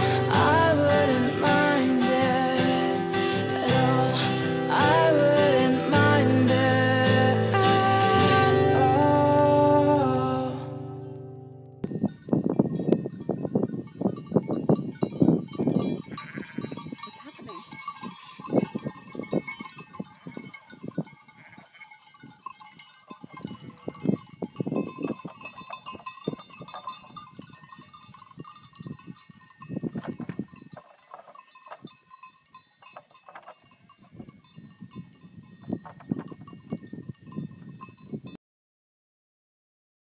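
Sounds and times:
neck bells clanking: 11.3 - 38.4
sheep bleating: 16.0 - 17.7.

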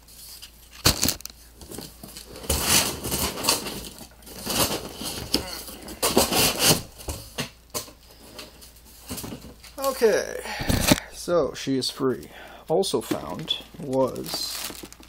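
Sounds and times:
cardboard box scraping and tearing: 6.0 - 6.9.

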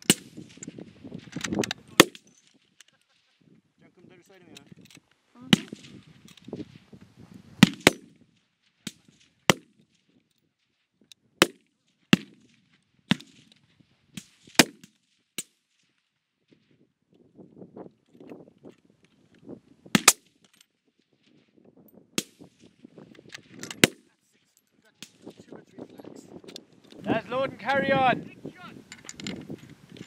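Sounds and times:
rifle shots: 7.6 - 8.1.

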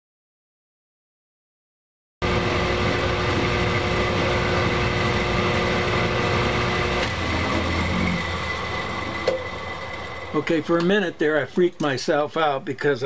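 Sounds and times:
metal lathe drilling: 2.3 - 11.4.

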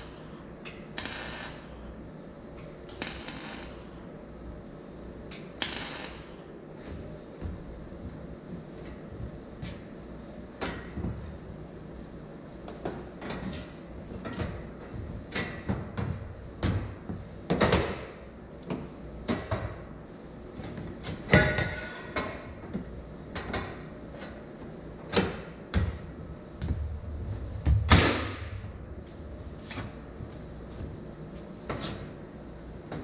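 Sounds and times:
metal frame clanks and scrapes: 21.2 - 22.4.

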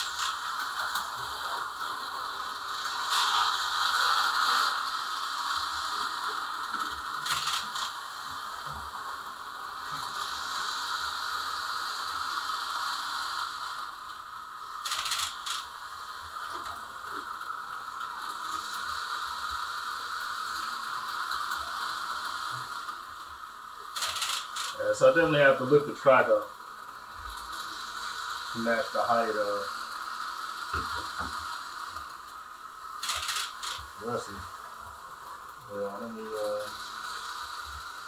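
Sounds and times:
sharp clicks: 33.0 - 33.9.

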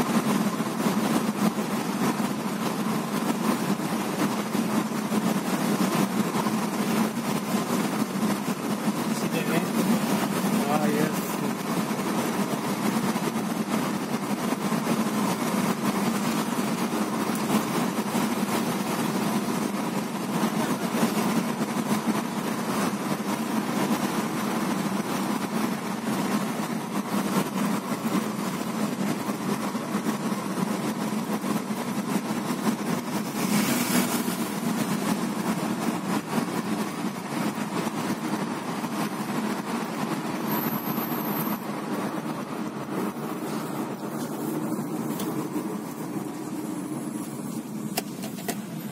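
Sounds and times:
car engine and tyre noise: 0.0 - 48.9.

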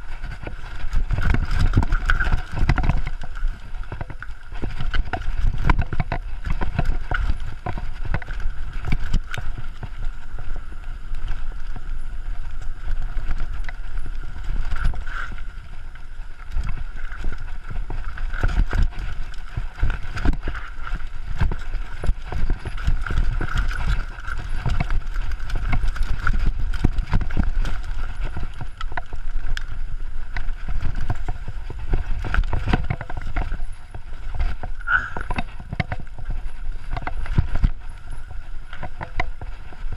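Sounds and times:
bike knocks and clatter: 0.0 - 10.2
bike rumbling on rough trail: 0.0 - 39.9.

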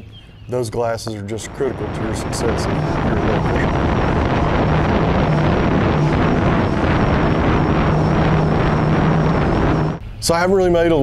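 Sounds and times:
wind buffeting microphone: 1.3 - 10.0
outboard motor running: 1.5 - 10.0
water rushing off hull: 1.5 - 10.0.

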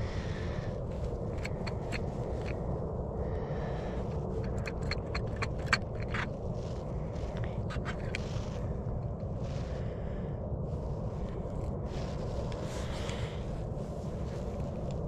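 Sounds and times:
steady low rumble: 0.0 - 15.0
fishing tackle clicking and scraping: 0.9 - 2.7, 4.0 - 9.2.

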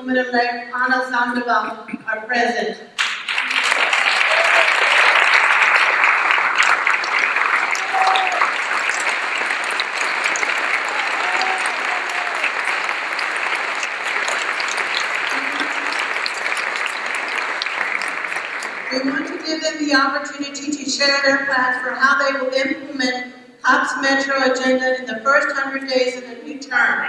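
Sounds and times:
voices over clapping: 3.0 - 19.4
audience applauding: 3.0 - 19.8.

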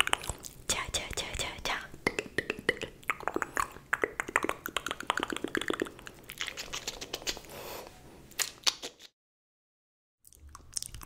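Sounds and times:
wet mouth clicks and pops: 0.0 - 1.3, 2.0 - 7.5, 8.4 - 9.1, 10.3 - 11.0.

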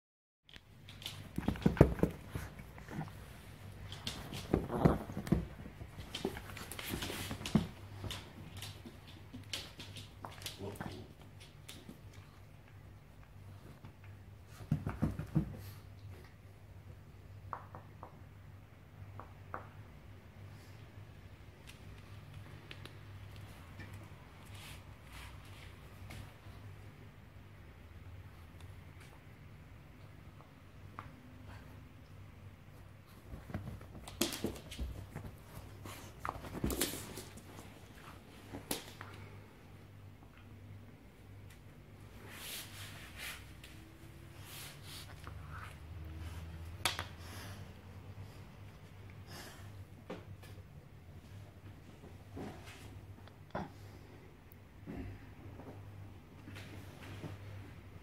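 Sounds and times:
dog scuffling with toy: 1.0 - 10.9, 33.0 - 38.7.

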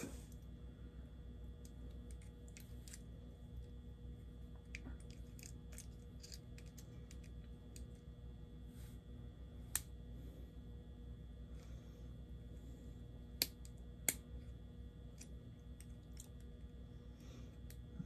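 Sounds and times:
small clicks and scratches: 1.6 - 3.8, 4.6 - 8.1, 13.4 - 16.7.

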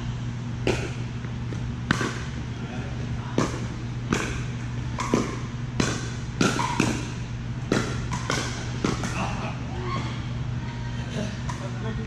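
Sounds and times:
steady low hum: 0.0 - 12.0
paddles hitting plastic ball: 0.6 - 2.3, 3.3 - 9.3.

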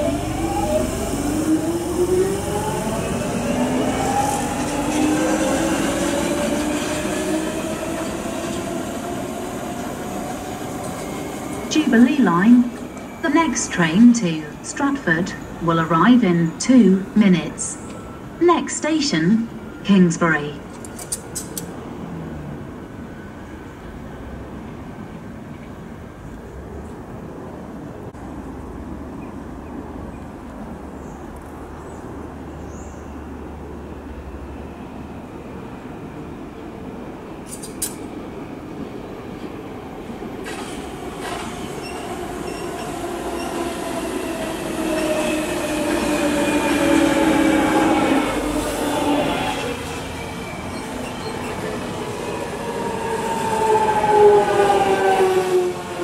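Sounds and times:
underground train rumble: 0.0 - 56.0
faint high squeaks: 41.3 - 43.7.

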